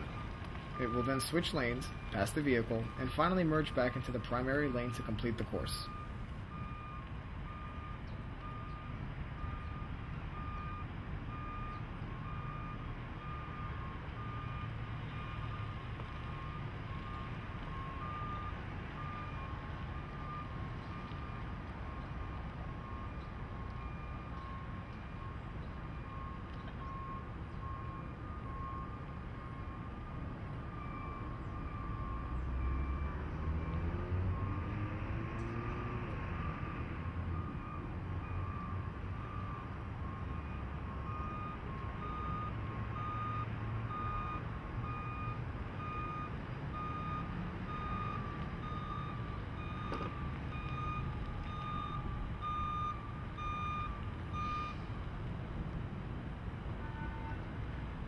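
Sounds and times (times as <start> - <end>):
vehicle engine and tyres humming: 0.0 - 58.0.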